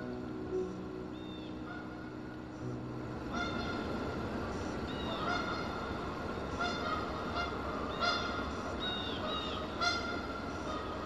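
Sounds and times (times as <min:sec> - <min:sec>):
steady rushing background noise: 0:00.0 - 0:11.0
geese honking: 0:01.2 - 0:02.1, 0:03.3 - 0:11.0.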